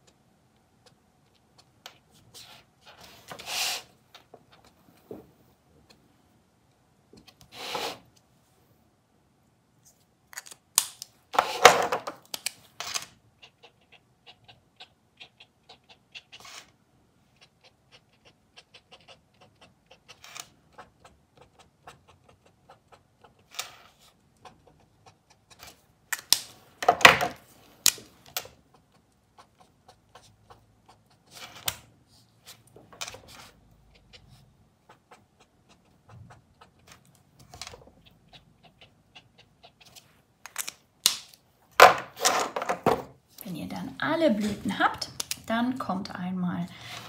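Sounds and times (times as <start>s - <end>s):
brush pen tapping and scratching: 19.6s - 31.9s
pens knocking: 41.8s - 43.1s.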